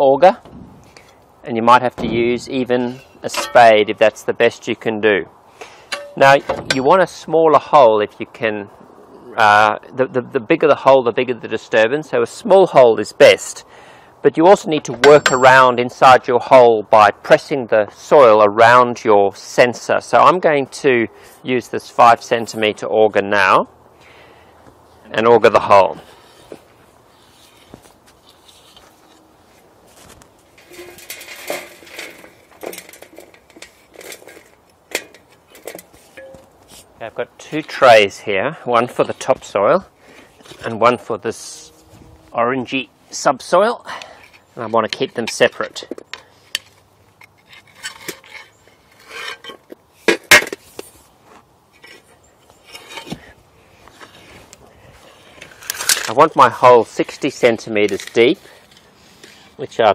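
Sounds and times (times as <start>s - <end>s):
sharp metallic knocks: 2.0s - 4.0s, 5.9s - 7.0s, 14.9s - 15.7s
auger scraping and clinking: 2.0s - 4.2s, 5.6s - 7.2s, 14.9s - 15.8s, 30.0s - 36.9s, 44.0s - 51.0s, 51.7s - 53.3s
auger grating in dry soil: 24.9s - 38.2s, 38.8s - 43.2s, 46.2s - 59.8s
soil rattling onto metal tray: 30.6s - 36.4s.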